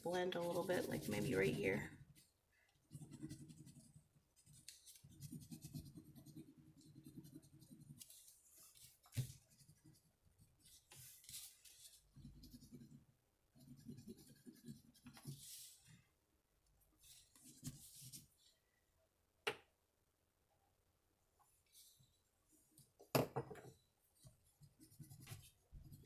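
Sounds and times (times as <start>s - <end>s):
crayon scratching on paper: 0.1s - 2.2s, 2.9s - 13.0s, 13.6s - 15.8s, 24.6s - 26.0s.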